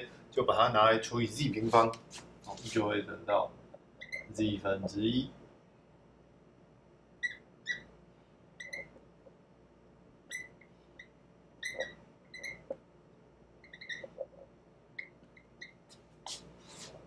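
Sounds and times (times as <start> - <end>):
marker squeaking on whiteboard: 4.0 - 4.4, 7.2 - 8.0, 8.6 - 9.1, 10.3 - 12.8, 13.6 - 17.0.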